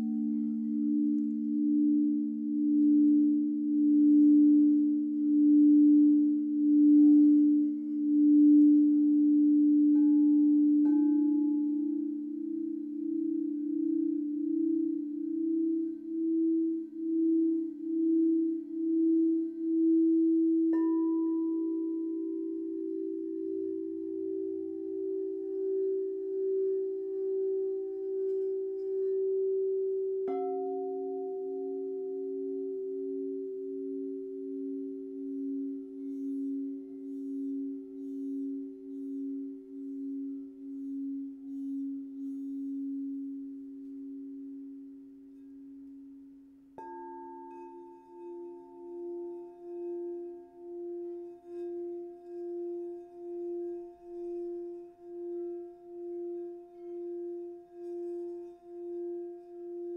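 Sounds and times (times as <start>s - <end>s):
crystal singing bowls ringing: 0.0s - 59.9s.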